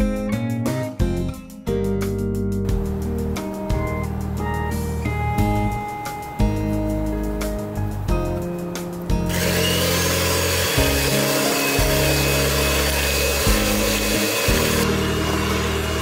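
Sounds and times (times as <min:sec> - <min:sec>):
background music: 0:00.0 - 0:16.0
electric hand mixer whirring: 0:09.3 - 0:16.0.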